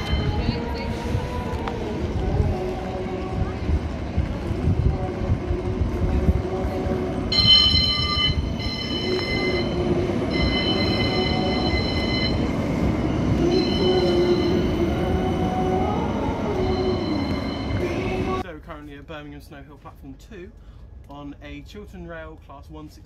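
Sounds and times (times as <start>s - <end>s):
tram running past: 0.0s - 18.4s
steady rumble: 0.0s - 22.3s
high-pitched wheel squeal: 7.3s - 12.6s, 13.4s - 15.1s.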